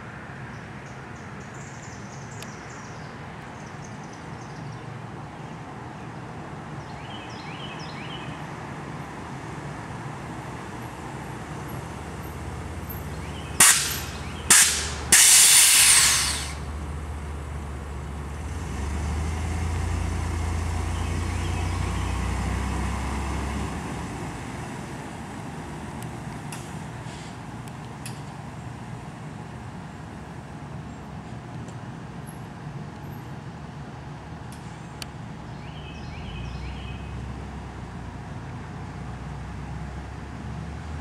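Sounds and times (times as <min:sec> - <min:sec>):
low vehicle rumble: 0:06.4 - 0:41.0
air suspension hissing: 0:13.5 - 0:16.8.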